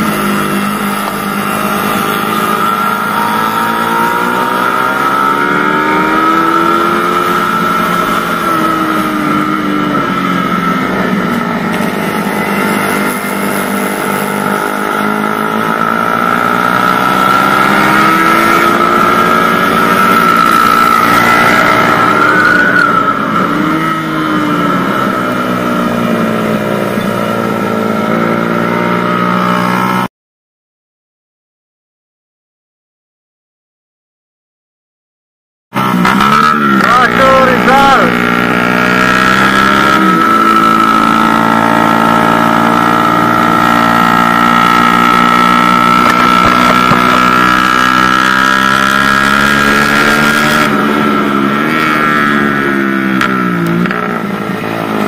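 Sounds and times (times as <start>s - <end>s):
motorcycle engine revving: 0.0s - 30.1s, 35.7s - 55.0s
wind and road noise: 0.0s - 30.1s, 35.8s - 55.0s.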